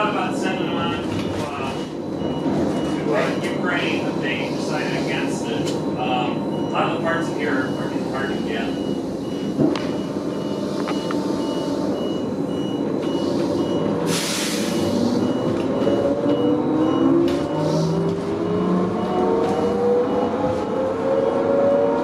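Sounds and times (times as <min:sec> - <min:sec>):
quick steady beeping: 0:02.0 - 0:14.0
air hiss: 0:13.2 - 0:15.2.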